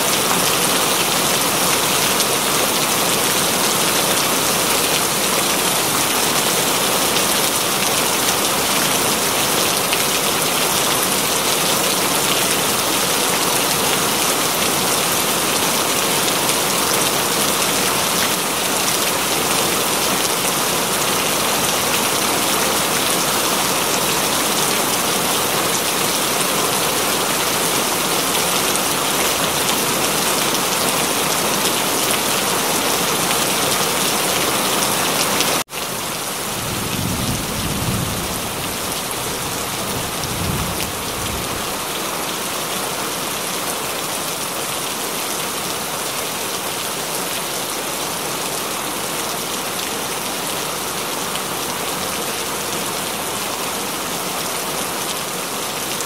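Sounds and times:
steady rain: 0.0s - 56.0s
low rumble of thunder: 36.5s - 41.6s.

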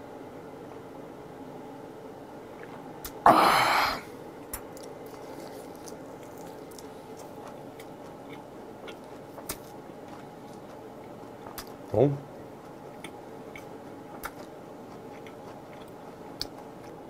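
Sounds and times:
breathy gasp: 3.3s - 4.1s
soft chewing: 4.4s - 17.0s.

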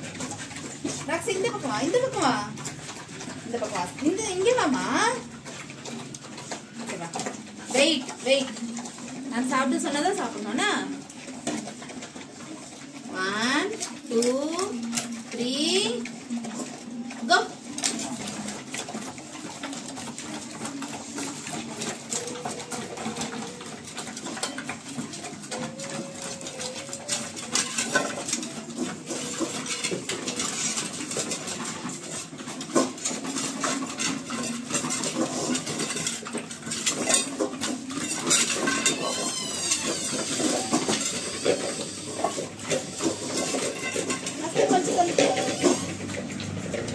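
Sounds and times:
metal bowls scraping on tile floor: 0.0s - 46.9s.

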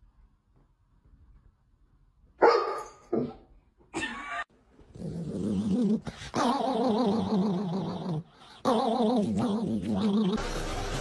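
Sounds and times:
dog barking: 2.4s - 3.4s.

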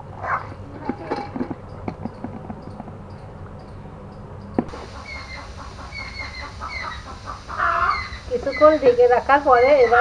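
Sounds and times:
bird chirping: 1.6s - 10.0s.

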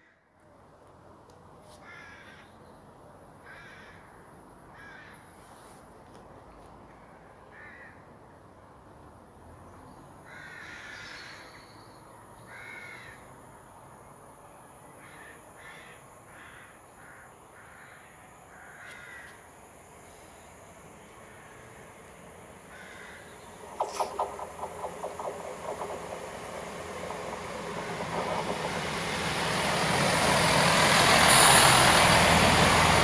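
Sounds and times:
bird calling: 22.7s - 29.1s.

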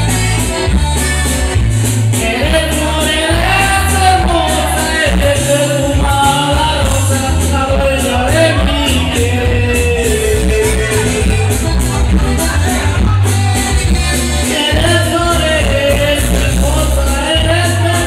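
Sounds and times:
amplified backing music: 0.0s - 18.0s
man singing into microphone: 2.1s - 11.7s, 14.3s - 18.0s.

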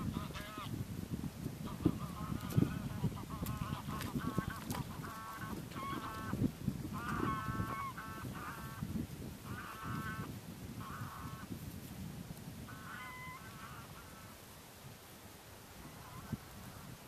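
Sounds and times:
geese honking: 0.0s - 0.7s, 1.6s - 8.8s, 9.4s - 11.5s, 12.7s - 14.4s, 15.9s - 16.4s.

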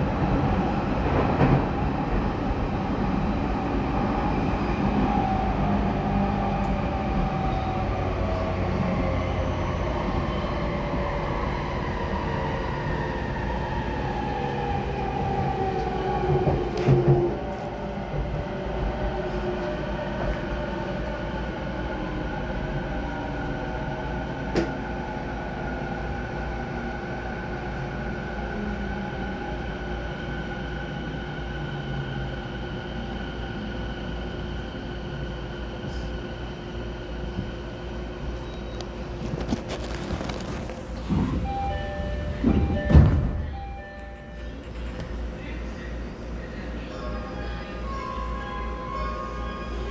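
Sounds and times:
train doors sliding open: 15.7s - 18.3s, 38.4s - 45.2s.

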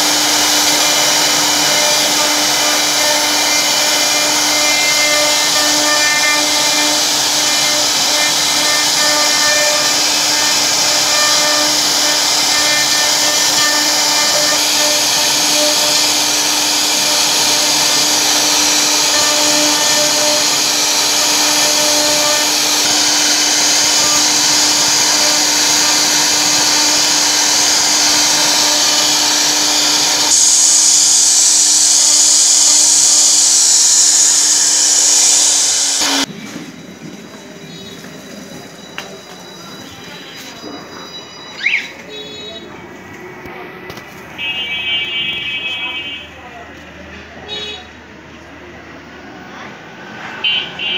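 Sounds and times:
bit cutting wood hiss: 0.0s - 36.3s
router motor whine: 0.0s - 36.3s.

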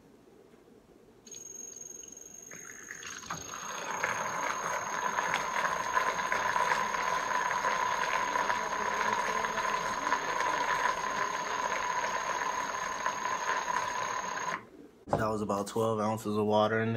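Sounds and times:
mixer motor whirring and rattling: 3.2s - 14.6s.

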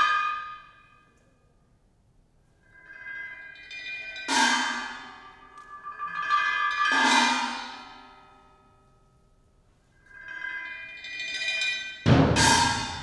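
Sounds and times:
mallet strokes on bell-like instruments: 0.0s - 1.2s, 2.6s - 13.0s
loud ringing strike: 12.0s - 13.0s.

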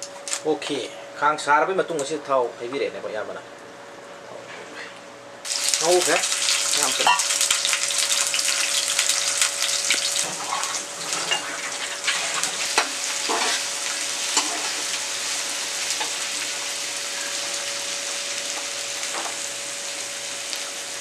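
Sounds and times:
onions sizzling in oil: 5.4s - 21.0s.

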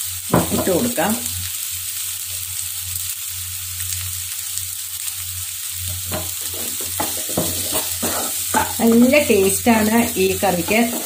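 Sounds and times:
vegetables sizzling in a pan: 0.0s - 11.0s
wooden spatula scraping: 5.9s - 11.0s.

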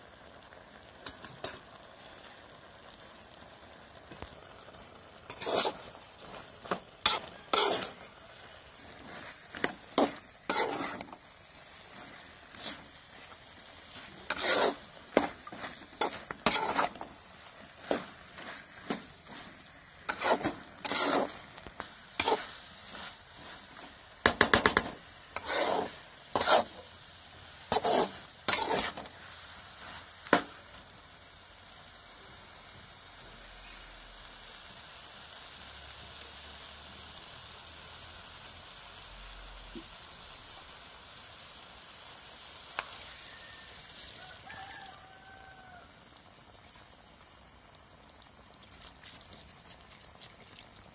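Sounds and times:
faint sizzle: 0.0s - 50.9s
spatula scraping metal pan: 5.2s - 26.9s, 27.7s - 29.2s.

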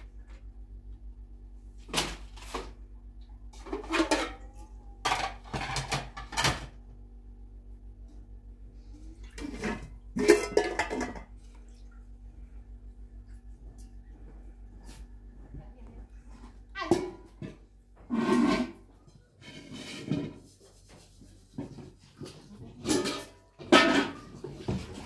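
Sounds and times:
steady low hum: 0.0s - 19.4s
pots and dishes clattering: 3.5s - 6.8s, 9.2s - 11.6s, 16.8s - 20.5s, 21.6s - 25.0s.

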